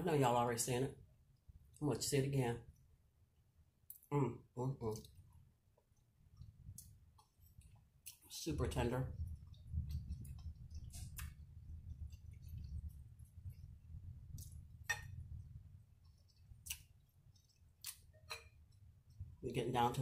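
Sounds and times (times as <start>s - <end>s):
person chewing close up: 9.3s - 13.0s, 16.1s - 18.1s.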